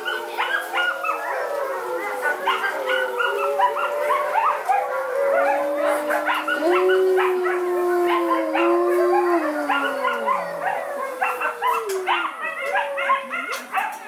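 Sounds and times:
wolves howling: 0.0 - 14.0
wolves yipping and yelping: 0.0 - 14.0.

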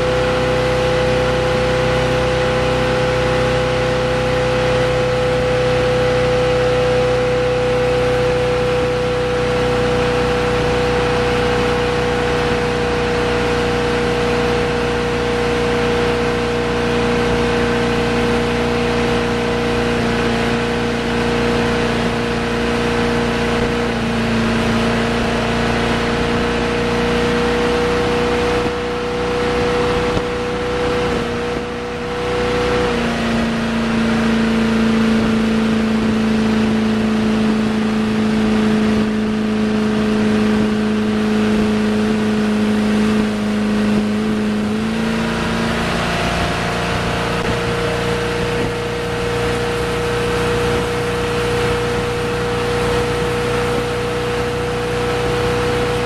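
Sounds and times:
boat engine running: 0.0 - 56.0
rushing wash of wake: 0.0 - 56.0.

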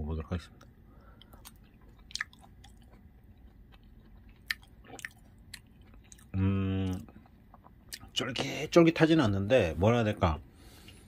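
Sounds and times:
man chewing food: 0.6 - 8.6, 10.6 - 11.0
man humming: 6.4 - 7.0.

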